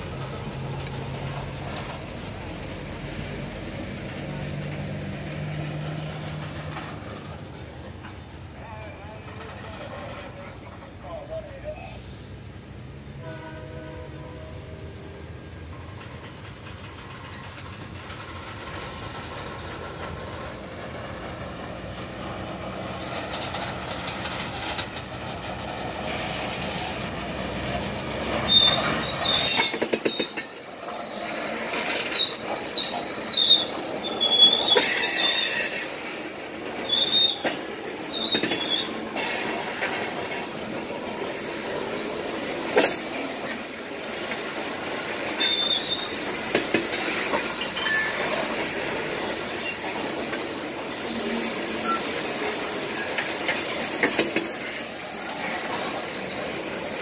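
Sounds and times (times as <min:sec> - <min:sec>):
freight cars rumbling on rails: 0:00.0 - 0:57.0
wheel squeal: 0:05.6 - 0:11.8, 0:15.1 - 0:20.6, 0:26.1 - 0:57.0.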